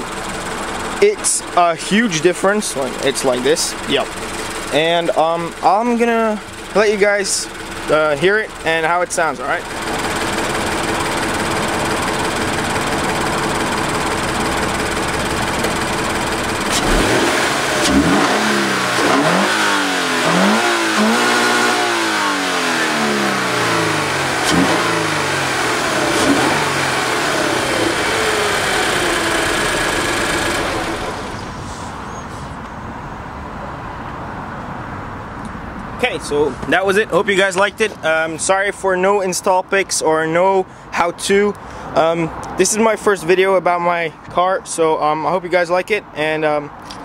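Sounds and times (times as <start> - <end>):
car engine idling and revving: 0.0 - 38.8.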